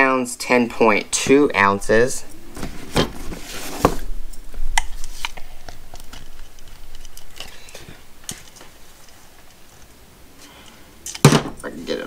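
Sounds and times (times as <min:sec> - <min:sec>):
handling rustle: 0:02.2 - 0:10.8.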